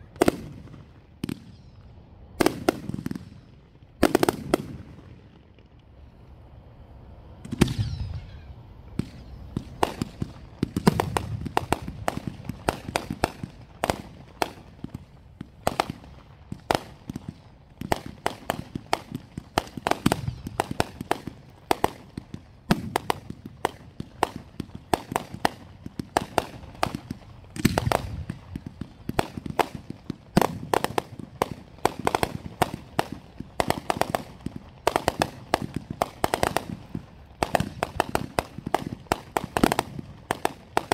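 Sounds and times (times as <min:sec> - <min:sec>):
fireworks crackling: 0:00.0 - 0:08.1, 0:08.7 - 0:40.9
deep firework booms: 0:09.0 - 0:40.9.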